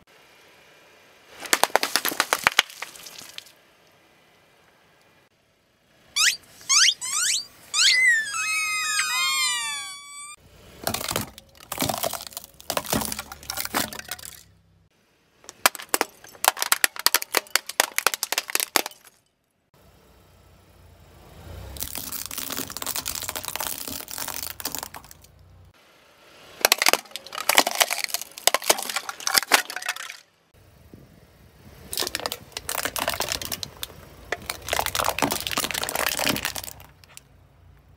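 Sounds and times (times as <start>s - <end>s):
plastic boxes cracking and breaking: 1.4s - 3.4s, 10.9s - 14.4s, 15.5s - 19.2s, 21.8s - 25.3s, 26.6s - 30.2s, 32.0s - 37.1s
crackling and crunching: 1.4s - 3.6s, 10.9s - 14.5s, 15.5s - 19.2s, 21.8s - 25.4s, 26.6s - 30.2s, 31.9s - 37.3s
rubber squeaky toys squealing: 6.2s - 10.4s.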